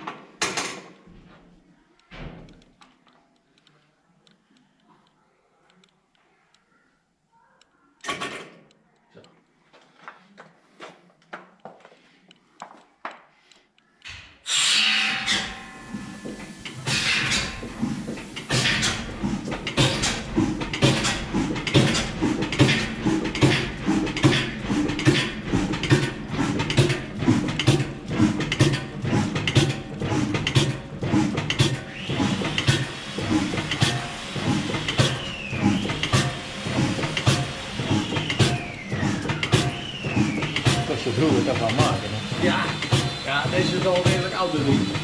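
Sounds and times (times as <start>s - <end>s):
high falling squeals: 14.5s - 18.4s
old engine knocking slowly: 15.5s - 45.0s.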